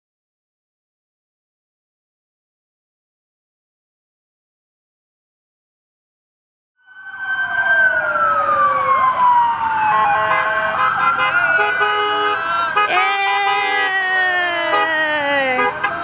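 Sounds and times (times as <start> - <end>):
police siren wailing: 6.8 - 16.0
car horns honking: 9.9 - 16.0.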